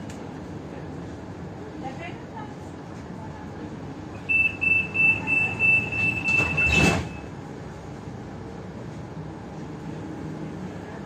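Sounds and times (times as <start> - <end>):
tram running rumble: 0.0 - 11.0
rapid high door warning beeps: 4.2 - 7.3.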